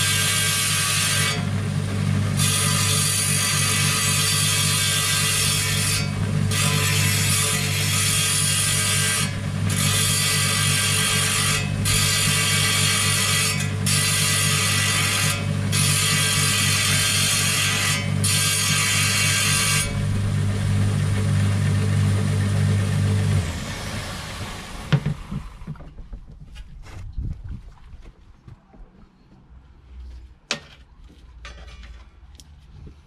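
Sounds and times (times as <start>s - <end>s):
saw blade grinding stone: 0.0s - 1.7s, 2.3s - 22.2s
saw motor hum: 0.0s - 25.6s.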